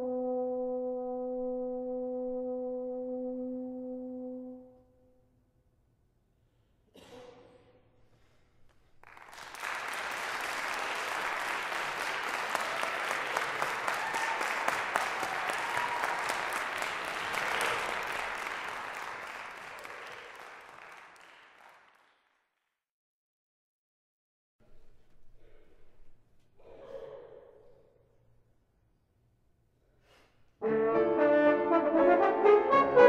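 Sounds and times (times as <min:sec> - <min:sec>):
audience applauding: 0:09.0 - 0:22.5.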